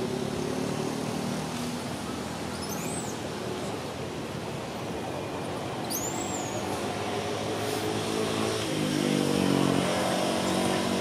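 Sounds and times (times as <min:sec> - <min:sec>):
outdoor background hiss and rumble: 0:00.0 - 0:11.0
bird chirp: 0:02.5 - 0:03.2, 0:05.8 - 0:06.7.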